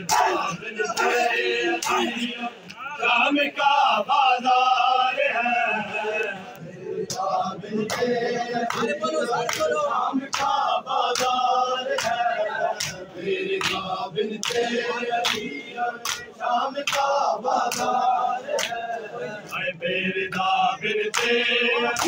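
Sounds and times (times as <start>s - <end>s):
hands slapping on chests: 0.0s - 2.8s, 7.0s - 18.8s, 20.3s - 22.0s
men chanting together: 0.0s - 22.0s.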